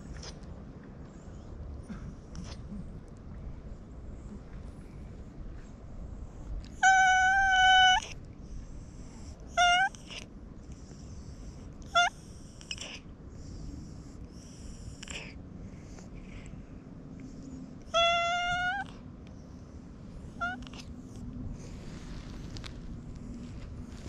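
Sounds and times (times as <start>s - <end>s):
cat meowing: 6.8s - 8.2s, 9.6s - 10.2s, 11.9s - 12.9s, 17.9s - 18.9s, 20.4s - 20.9s.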